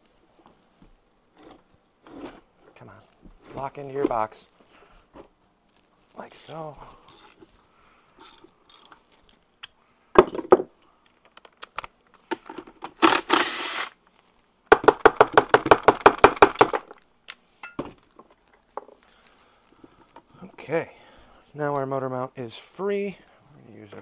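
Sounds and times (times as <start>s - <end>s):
ratchet clicking: 8.2s - 9.0s.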